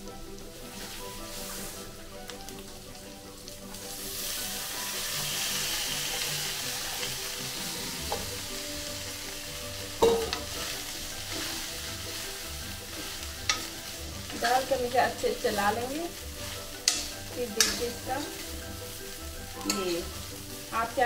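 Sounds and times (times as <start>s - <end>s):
potatoes sizzling in oil: 0.0s - 21.0s
spoon clinking on pan: 10.0s - 10.5s, 16.8s - 18.0s
steel spoon scraping pan: 10.0s - 14.8s, 15.5s - 20.3s.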